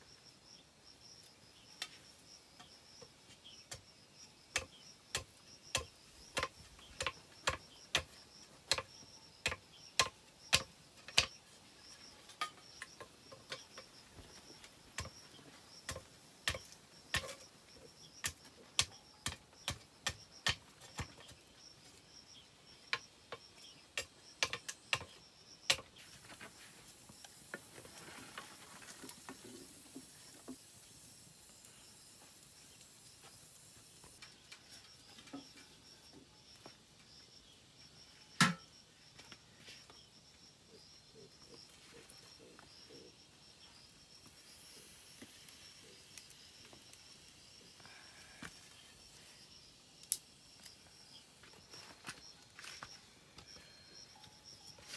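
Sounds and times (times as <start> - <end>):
machete striking bamboo: 4.6 - 11.4, 15.9 - 17.4, 38.4 - 38.6.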